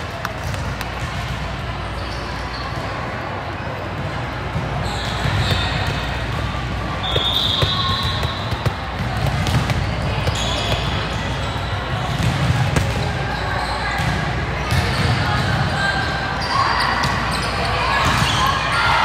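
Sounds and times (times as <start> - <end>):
crowd chatter: 0.0 - 19.0
ball thumping on gym floor: 7.0 - 11.1, 12.0 - 13.2.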